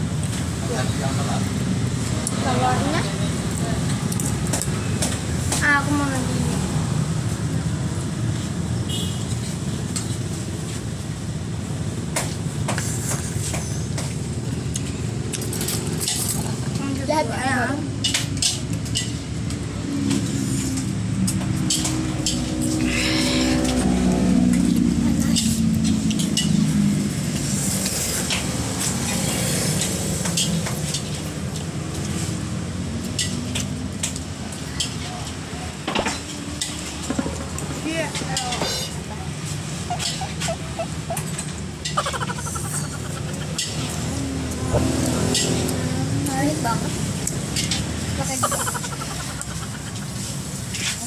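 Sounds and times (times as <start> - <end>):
cutlery clicking on a plate: 21.2 - 22.4.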